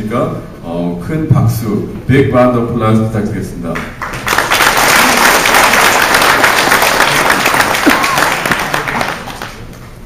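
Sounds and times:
close hands clapping: 0:03.8 - 0:09.8
audience applauding: 0:04.0 - 0:09.8.

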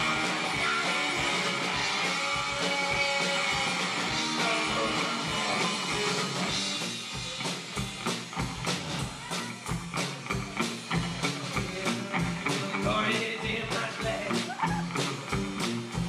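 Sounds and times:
live rock band: 0:00.0 - 0:16.0.

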